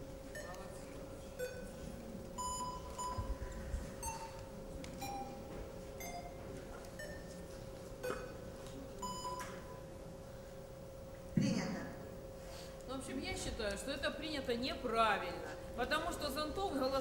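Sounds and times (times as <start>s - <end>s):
short electronic beeps: 1.4s - 1.7s, 2.4s - 3.4s, 7.0s - 7.4s, 9.0s - 9.6s.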